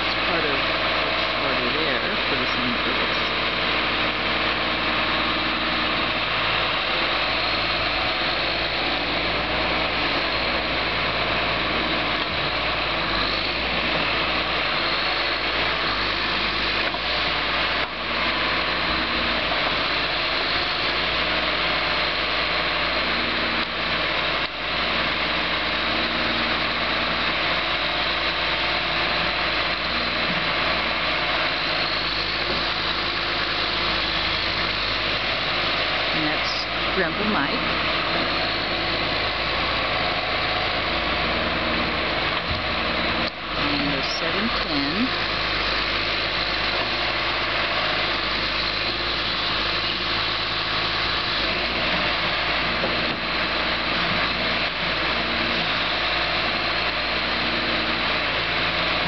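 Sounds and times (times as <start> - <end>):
diesel engine running: 0.0 - 59.0.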